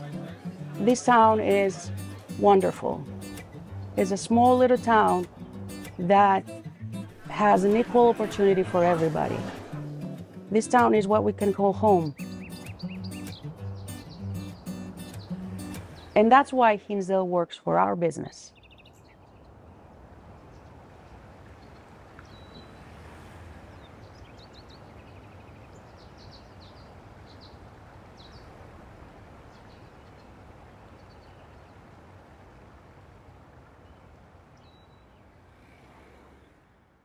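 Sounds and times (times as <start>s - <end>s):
bird chirps: 12.0s - 16.2s, 21.6s - 22.8s.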